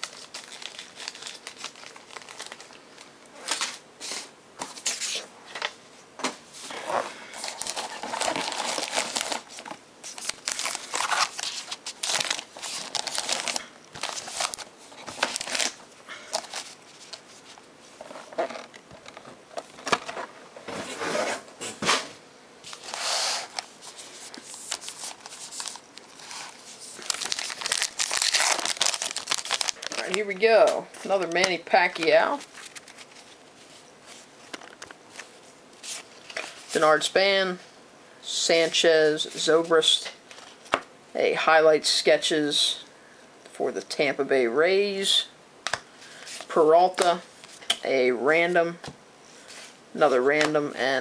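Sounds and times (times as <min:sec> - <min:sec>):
card wrappers crinkling and tearing: 0:00.0 - 0:03.8, 0:07.4 - 0:17.6, 0:22.7 - 0:33.4.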